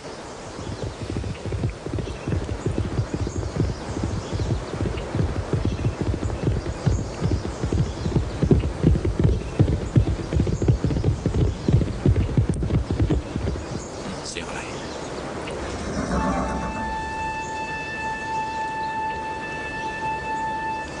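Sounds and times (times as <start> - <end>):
horse hooves clip-clopping: 0.4 - 14.3.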